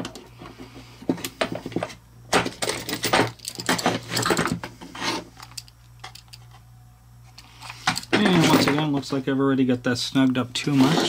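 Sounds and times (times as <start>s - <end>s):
metal hardware clinking: 2.4s - 4.6s, 5.4s - 6.5s.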